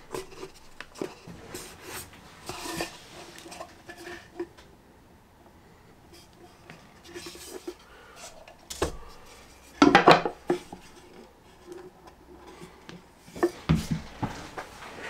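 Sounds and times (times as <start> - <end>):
hard objects clattering and knocking: 7.0 - 15.0.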